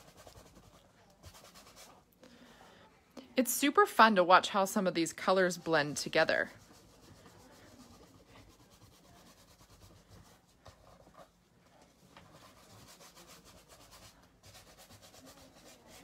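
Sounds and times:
fingertips rubbing paint on canvas: 0:00.0 - 0:02.0, 0:06.5 - 0:11.3, 0:12.0 - 0:16.0.

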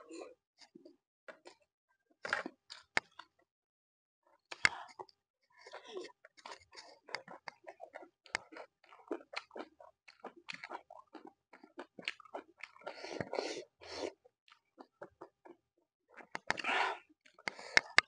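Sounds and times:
close chewing with wet mouth smacks: 0:04.6 - 0:18.0.

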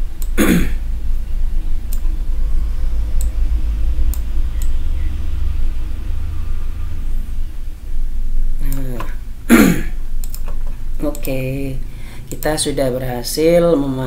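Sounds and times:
steady low rumble: 0:00.0 - 0:14.0
computer mouse clicks: 0:10.2 - 0:11.4.

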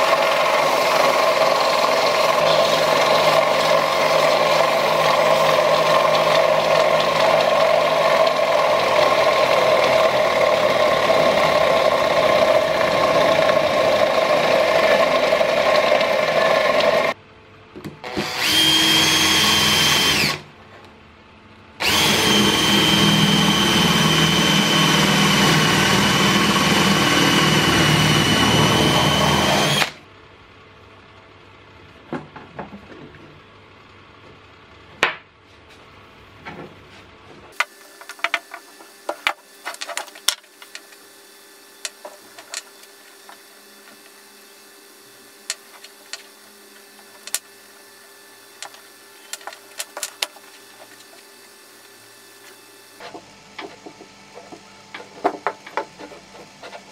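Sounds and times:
cordless drill boring into wood: 0:00.0 - 0:17.2, 0:18.0 - 0:20.4, 0:21.8 - 0:30.0
wooden parts clicking and knocking: 0:37.6 - 0:41.0, 0:41.8 - 0:44.0, 0:45.4 - 0:46.3, 0:47.0 - 0:47.4, 0:48.6 - 0:51.3, 0:53.0 - 0:56.9.

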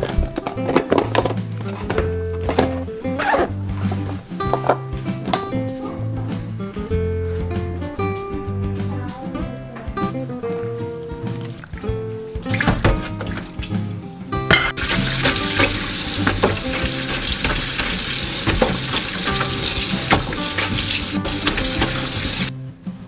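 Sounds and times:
kitchen tap running: 0:14.5 - 0:22.5
cloths being scrubbed: 0:14.8 - 0:22.5.

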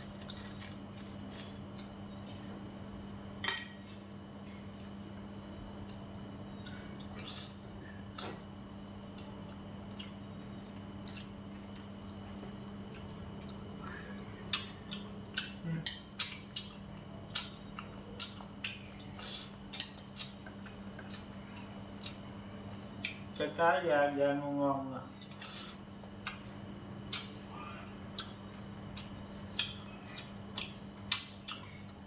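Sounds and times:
steady low hum: 0:00.0 - 0:32.0
utensils clinking on ceramic bowl: 0:03.4 - 0:03.8.

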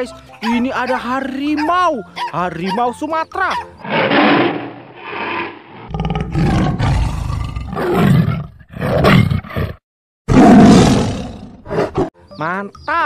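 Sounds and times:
tiger roaring and growling: 0:03.8 - 0:12.1.

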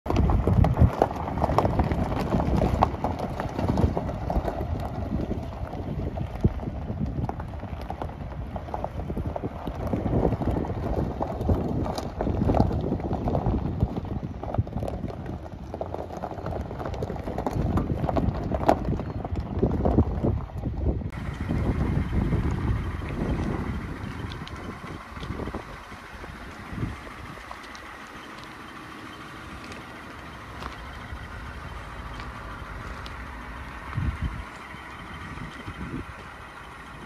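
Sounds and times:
footsteps crunching on gravel: 0:21.2 - 0:37.0.

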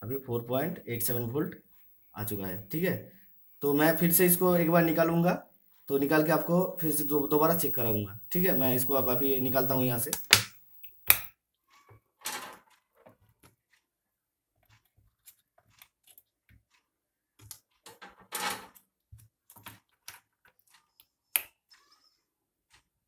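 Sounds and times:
sharp click: 0:05.9 - 0:11.3.

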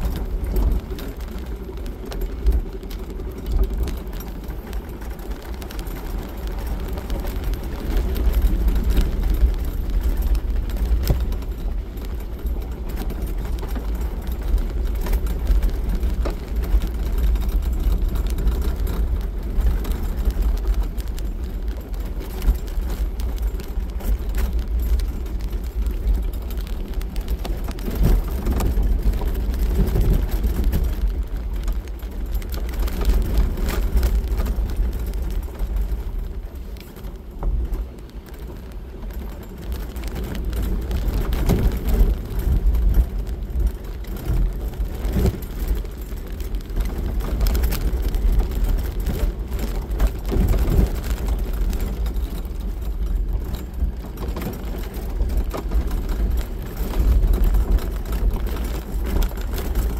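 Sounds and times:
small knocks and rattles: 0:00.0 - 0:59.9.

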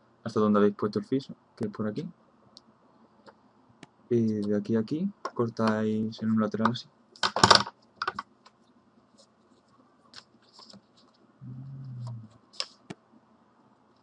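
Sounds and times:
paper rustling: 0:09.1 - 0:11.2, 0:12.3 - 0:12.9
short low hum: 0:11.4 - 0:12.4.

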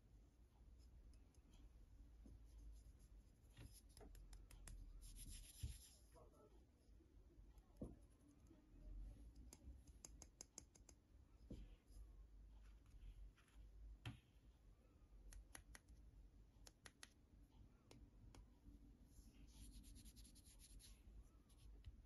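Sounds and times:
soft rubbing hiss: 0:05.0 - 0:06.1.

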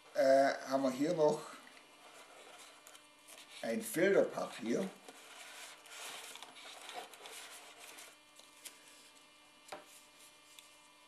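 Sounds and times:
paper filter rustling: 0:04.4 - 0:10.9.

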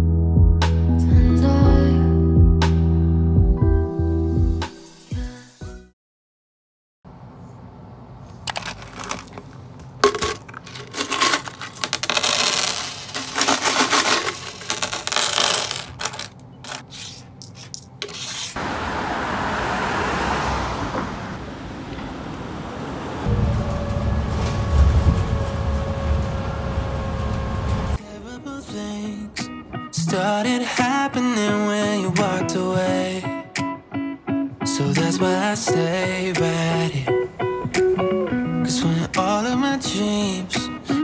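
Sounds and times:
coins clinking on table: 0:08.5 - 0:09.4, 0:10.0 - 0:16.8
bus running noise: 0:16.2 - 0:28.2
low rumble: 0:23.3 - 0:28.0.

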